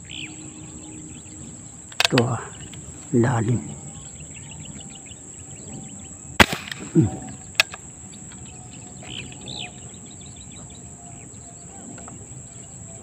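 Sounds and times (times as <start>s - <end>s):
insects chirring: 0.0s - 13.0s
sharp click: 1.9s - 2.8s, 6.4s - 7.8s
airgun shot crack: 6.4s - 7.7s.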